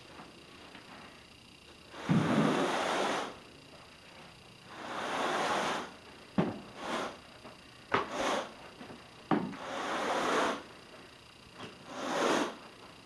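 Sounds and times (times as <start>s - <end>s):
carpet rake swishing through carpet: 2.0s - 3.4s, 4.7s - 6.0s, 6.7s - 7.2s, 8.0s - 8.6s, 9.6s - 10.7s, 11.8s - 12.6s.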